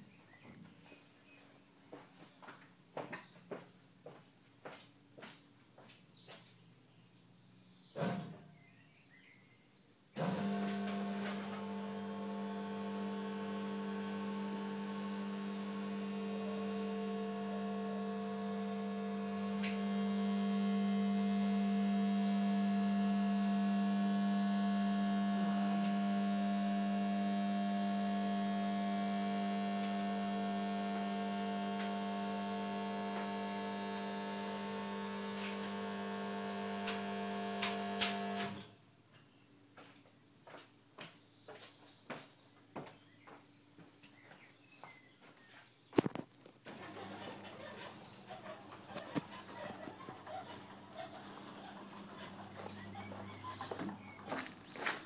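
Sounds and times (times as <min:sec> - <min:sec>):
hydraulic pump humming: 0:10.2 - 0:38.7, 0:46.7 - 0:55.0.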